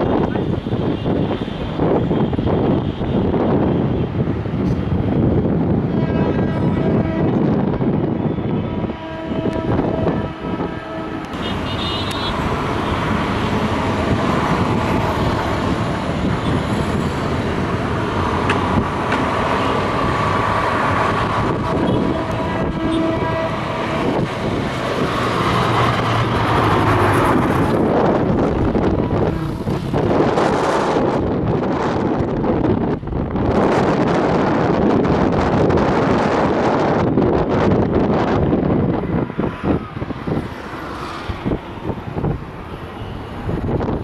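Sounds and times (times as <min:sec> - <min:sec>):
loud traffic noise: 0:00.0 - 0:44.0
horn tones: 0:08.4 - 0:13.1, 0:21.5 - 0:24.3
bus engine passing: 0:09.9 - 0:44.0.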